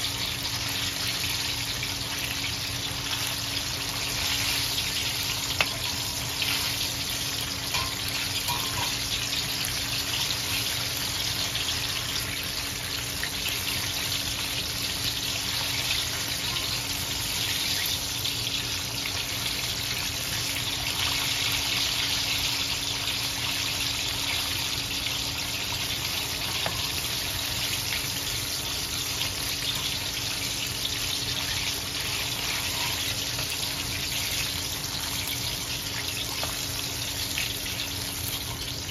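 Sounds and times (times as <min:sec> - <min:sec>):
chicken deep-frying in oil: 0:00.0 - 0:38.9
metal skimmer clinking pan: 0:07.7 - 0:09.1.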